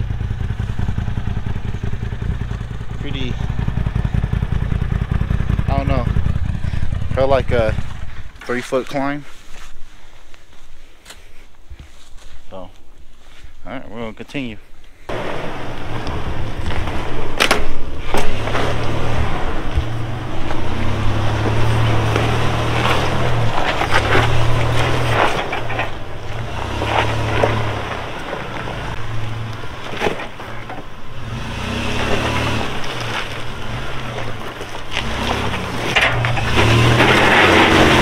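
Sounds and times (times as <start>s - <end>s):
engine running at low revs: 0.0s - 8.3s, 15.1s - 38.0s
tyres crunching on rock: 15.1s - 38.0s.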